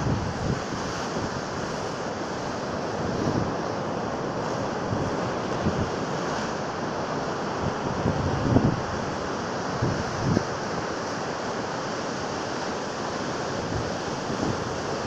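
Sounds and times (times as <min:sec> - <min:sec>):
wind gusting on microphone: 0:00.0 - 0:06.6, 0:07.5 - 0:10.9, 0:13.5 - 0:15.0.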